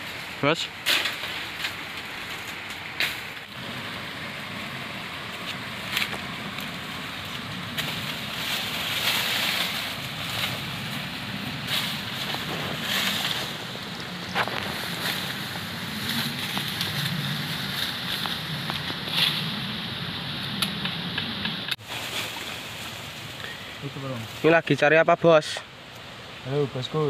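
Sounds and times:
steady rushing noise: 0:00.0 - 0:25.4
leaves and twigs rustling: 0:00.0 - 0:27.0
pruning shears snipping: 0:00.8 - 0:03.6, 0:05.3 - 0:11.0, 0:11.7 - 0:19.5, 0:20.4 - 0:21.8.

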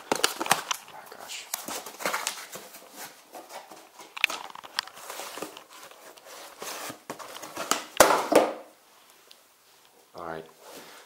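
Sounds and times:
cardboard rustling and scraping: 0:01.6 - 0:07.9.

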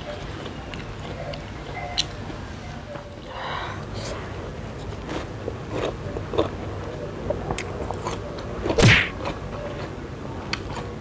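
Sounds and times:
person chewing wetly: 0:00.0 - 0:02.2, 0:04.8 - 0:09.9.

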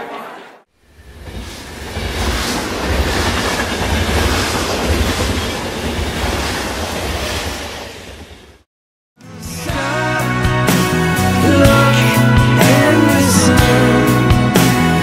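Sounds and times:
subway train rumbling and rattling: 0:00.8 - 0:08.7.

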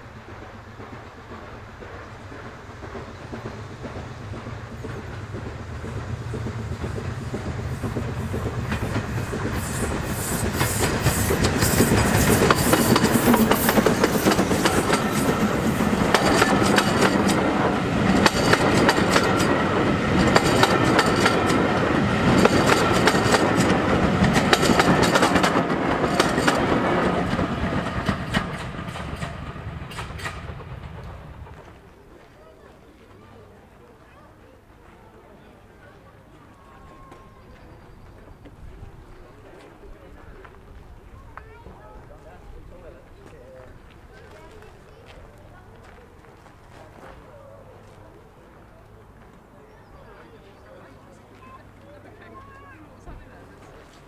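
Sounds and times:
steam train passing: 0:00.0 - 0:54.0
wheels clicking over rail joints: 0:00.3 - 0:32.4.

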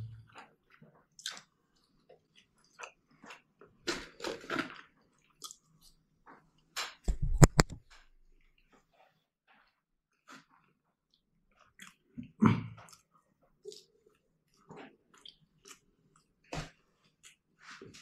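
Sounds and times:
person chewing food: 0:00.3 - 0:03.6, 0:10.3 - 0:12.1, 0:12.8 - 0:16.3
hand bumping recording device: 0:07.1 - 0:07.8
lip smacking sucking fingers: 0:07.1 - 0:07.8.

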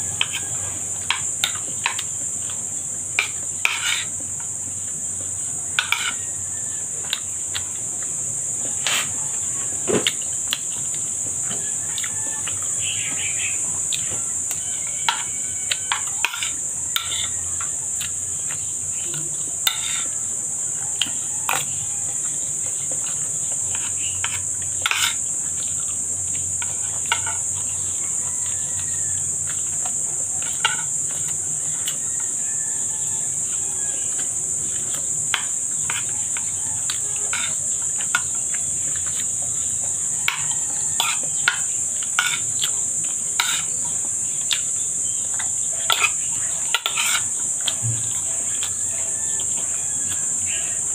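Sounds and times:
metal spoon scraping a bowl: 0:03.2 - 0:04.2, 0:05.8 - 0:06.3, 0:14.0 - 0:17.4, 0:19.6 - 0:20.2, 0:23.7 - 0:25.7, 0:26.6 - 0:27.8, 0:30.4 - 0:32.0, 0:35.3 - 0:39.6, 0:40.2 - 0:42.7, 0:43.4 - 0:43.8, 0:45.8 - 0:47.3
chewing: 0:04.1 - 0:50.9.

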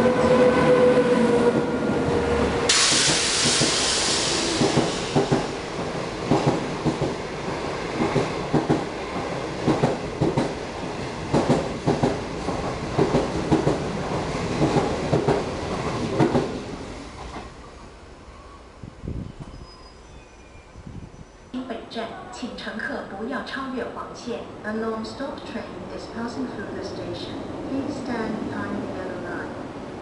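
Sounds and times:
train rushing air hiss: 0:02.7 - 0:05.7
train wheels clicking over rail joints: 0:02.7 - 0:07.2.

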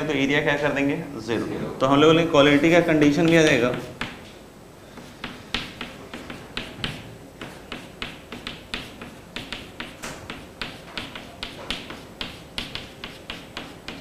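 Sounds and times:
chalk tapping on chalkboard: 0:03.0 - 0:04.3, 0:04.9 - 0:14.0.

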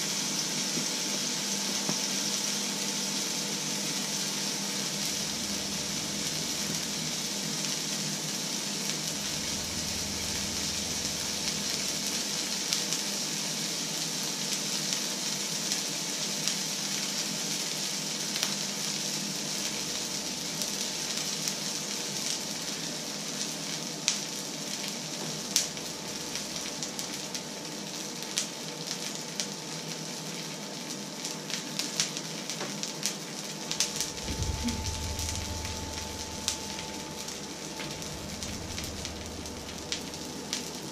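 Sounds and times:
oil sizzling in frying pan: 0:00.0 - 0:40.9
oil popping and crackling: 0:25.2 - 0:27.7.

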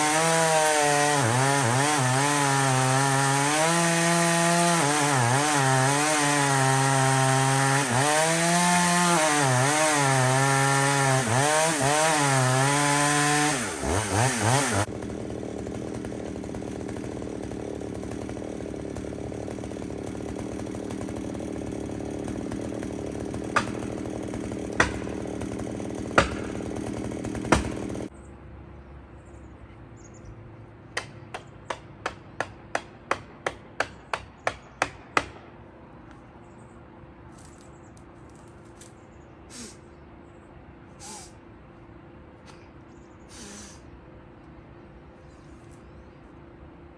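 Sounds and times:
chainsaw cutting wood: 0:00.0 - 0:28.1, 0:39.5 - 0:39.8, 0:41.0 - 0:41.3, 0:43.3 - 0:43.8.

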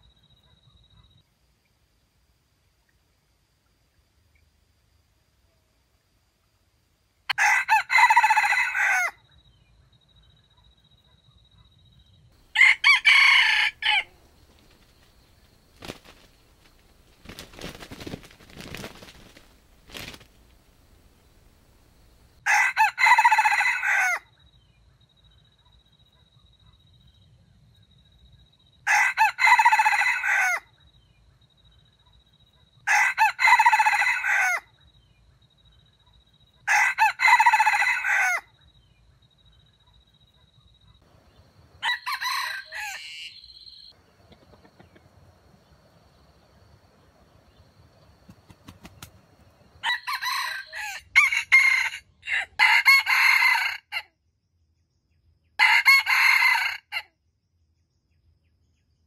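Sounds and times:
rooster crowing: 0:07.3 - 0:09.2, 0:12.5 - 0:14.2, 0:22.4 - 0:24.3, 0:28.9 - 0:30.7, 0:32.8 - 0:34.7, 0:36.7 - 0:38.5, 0:41.8 - 0:43.9, 0:49.8 - 0:54.0, 0:55.6 - 0:57.0
high insect tone: 0:12.5 - 0:22.4.

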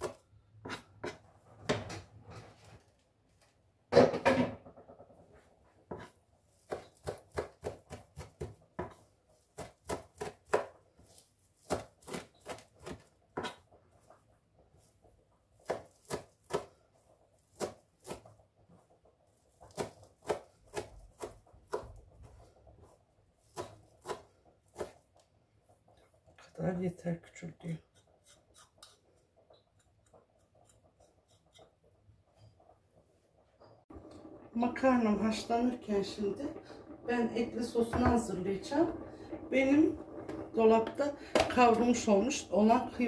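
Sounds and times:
knife chopping on plastic board: 0:05.9 - 0:13.6, 0:15.6 - 0:16.8, 0:17.4 - 0:18.3, 0:19.6 - 0:22.0, 0:23.4 - 0:25.0.

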